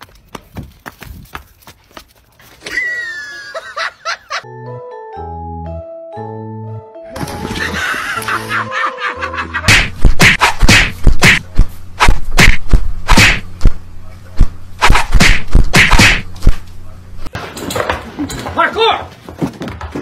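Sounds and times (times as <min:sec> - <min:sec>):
steady low hum: 0:09.6 - 0:17.4
paw slapping whacks: 0:09.7 - 0:13.5, 0:14.8 - 0:16.3.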